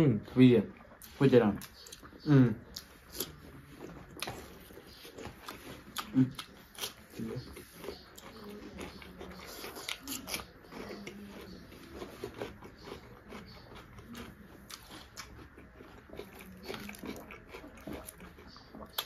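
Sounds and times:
food crunching: 0.7s - 19.0s
chewing mouth clicks and smacks: 0.8s - 19.0s.

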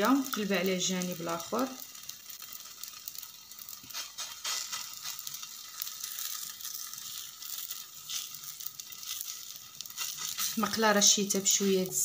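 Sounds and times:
dough sizzling in a pan: 0.0s - 12.0s.

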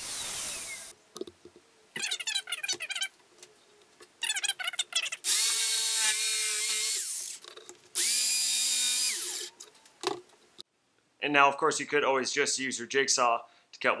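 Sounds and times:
jigsaw motor whining: 5.2s - 7.4s, 8.0s - 9.5s.

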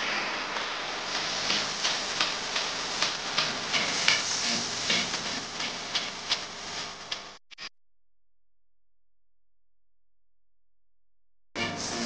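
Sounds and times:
machinery hiss: 0.0s - 7.1s, 11.6s - 12.0s
machinery clicks and clacks: 1.2s - 6.5s.

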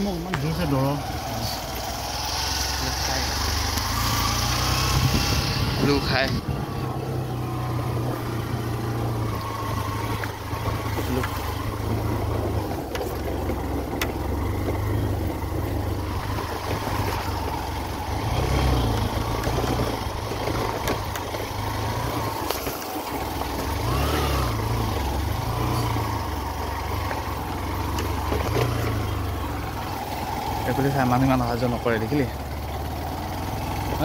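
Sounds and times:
motorbike engine revving: 0.0s - 34.0s
wind noise: 4.8s - 6.7s.

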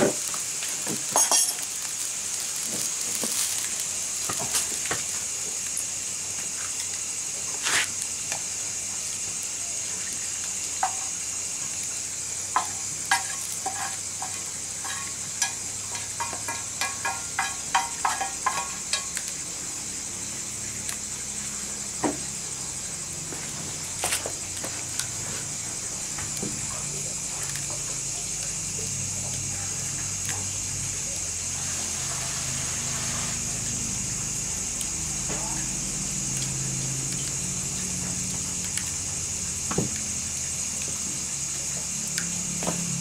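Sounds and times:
greens sizzling in a pan: 0.0s - 43.0s
metal clinks and scrapes on pan: 1.2s - 1.7s, 12.6s - 19.1s.

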